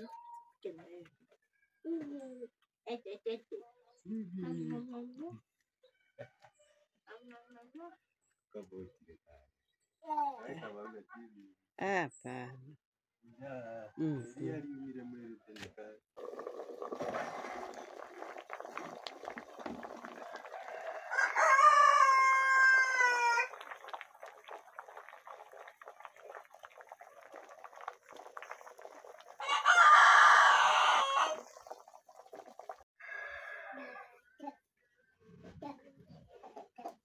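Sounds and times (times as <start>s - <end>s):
rooster crowing: 20.1s - 23.6s, 29.4s - 31.5s, 33.0s - 34.1s.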